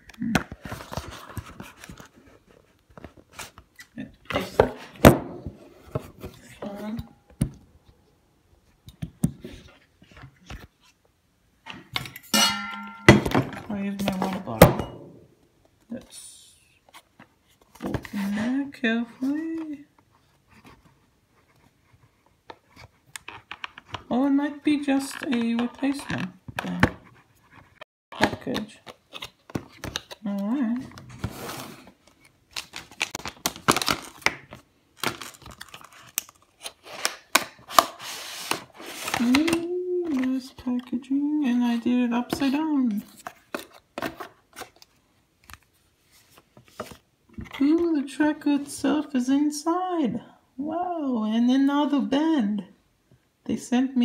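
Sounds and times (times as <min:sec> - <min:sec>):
cardboard box rustling and scraping: 0:31.1 - 0:32.0.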